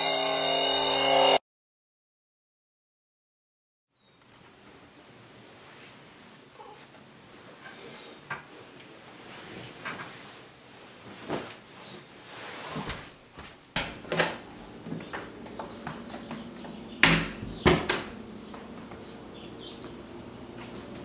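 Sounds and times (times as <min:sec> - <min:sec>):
bedding rustling: 0:08.5 - 0:19.2
knocks and clicks of movement: 0:13.8 - 0:19.1.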